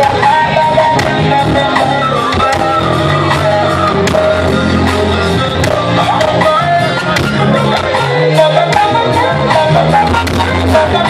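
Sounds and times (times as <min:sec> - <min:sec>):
blues-rock band playing: 0:00.0 - 0:11.0.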